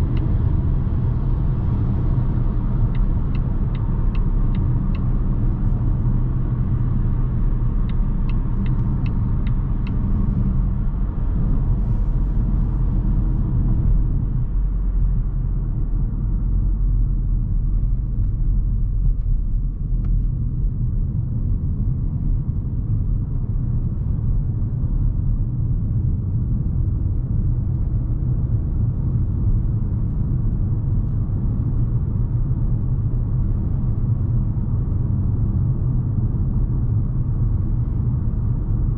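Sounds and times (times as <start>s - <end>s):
car road and engine rumble: 0.0s - 38.9s
turn signal ticking: 2.0s - 10.9s.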